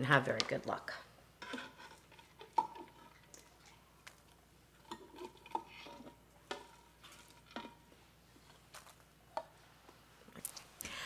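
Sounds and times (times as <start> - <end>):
cup scraping and knocking in a pot: 1.4 - 3.5, 4.8 - 8.0.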